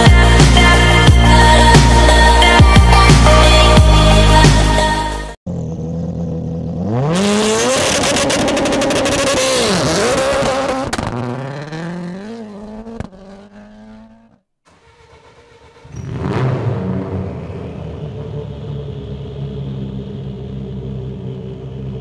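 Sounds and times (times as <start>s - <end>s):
rally car engine revving high: 5.5s - 22.0s
rapid exhaust crackle: 5.5s - 22.0s.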